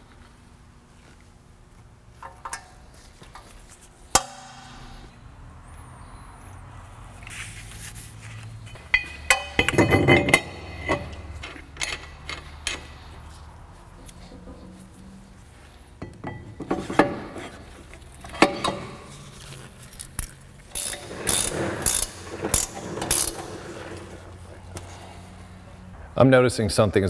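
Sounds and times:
metal brake parts clinking: 0:08.7 - 0:13.1
metal clanks ringing: 0:08.8 - 0:12.9.

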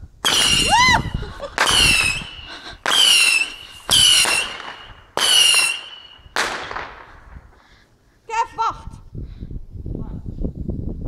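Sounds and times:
whistling fireworks: 0:00.2 - 0:07.6.

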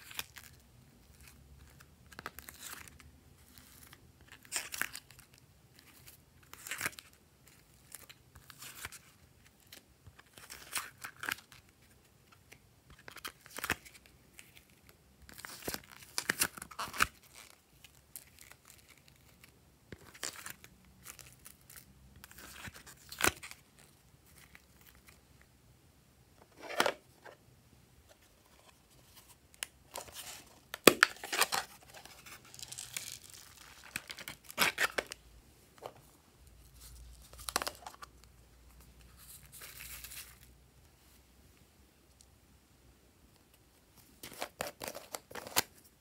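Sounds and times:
clay peeling and crinkling: 0:28.1 - 0:40.5.

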